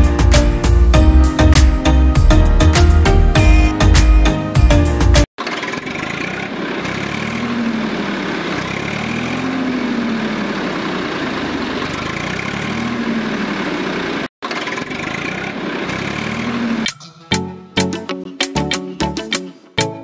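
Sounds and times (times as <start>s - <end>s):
engine running: 5.4s - 17.1s.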